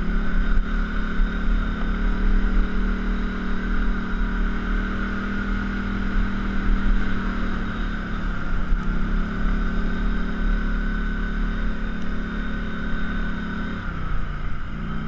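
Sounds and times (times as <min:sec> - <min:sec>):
atv engine running: 0:00.0 - 0:15.0.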